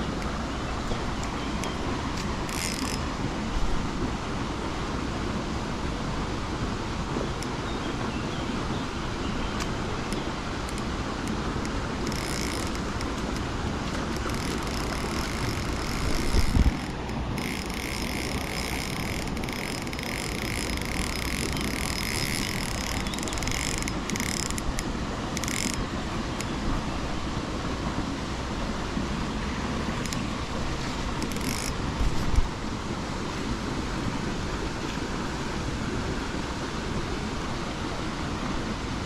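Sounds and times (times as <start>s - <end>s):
high buzzing: 13.9s - 25.8s.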